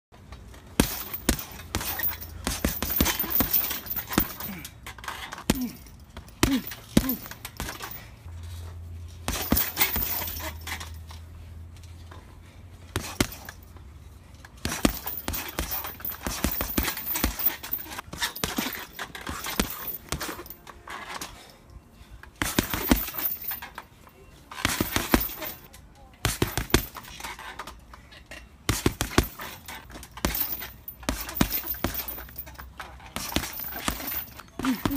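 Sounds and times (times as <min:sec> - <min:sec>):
boxing gloves hitting punching bag: 0:00.7 - 0:04.7, 0:05.3 - 0:08.1, 0:09.2 - 0:10.8, 0:12.9 - 0:13.7, 0:14.6 - 0:20.6, 0:22.4 - 0:23.7, 0:24.6 - 0:27.4, 0:28.6 - 0:34.9.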